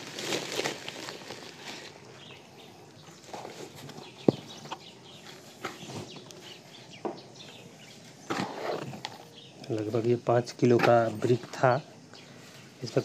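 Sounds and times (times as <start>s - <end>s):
rustling of plastic sack: 0.0s - 6.8s.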